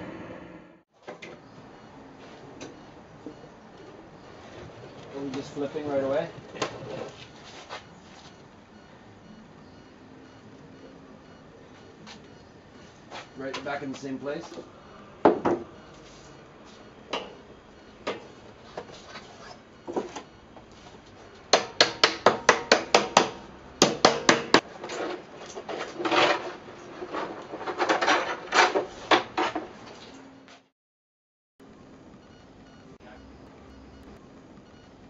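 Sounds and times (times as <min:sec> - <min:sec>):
hammer striking barrel hoop: 0:21.5 - 0:24.6.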